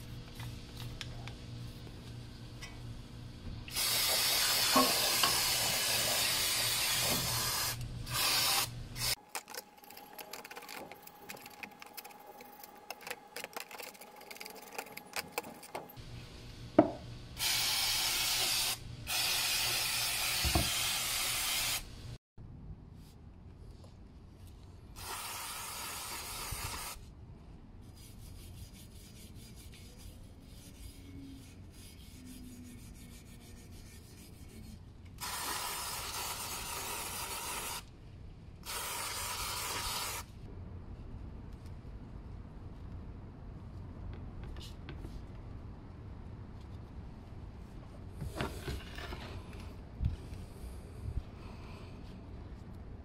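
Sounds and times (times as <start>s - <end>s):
aerosol spray bursts: 17.4s - 21.8s, 25.0s - 27.0s, 35.2s - 37.8s, 38.6s - 40.3s.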